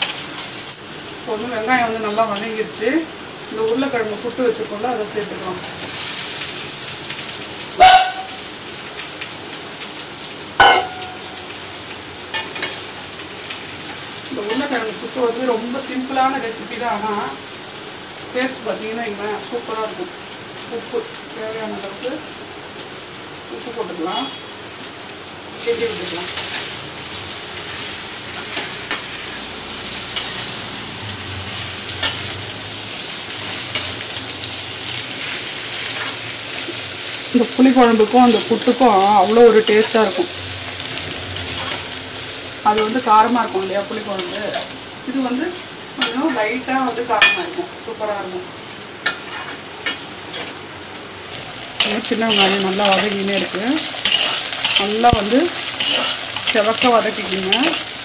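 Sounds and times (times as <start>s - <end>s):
food sizzling in a pan: 0.0s - 58.0s
loud metal clank: 10.6s - 11.2s
ladle clinking: 10.6s - 11.3s.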